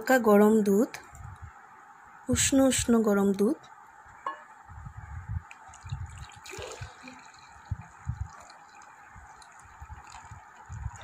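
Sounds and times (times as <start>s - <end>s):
milk pouring into glass bowl: 5.6s - 11.0s
soft low thumps: 7.6s - 8.4s.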